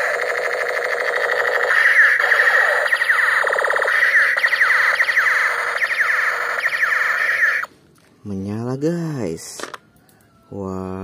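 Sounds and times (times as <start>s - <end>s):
electronic laser zaps: 0.0s - 7.7s
toy pistol alarm tone: 0.0s - 7.7s.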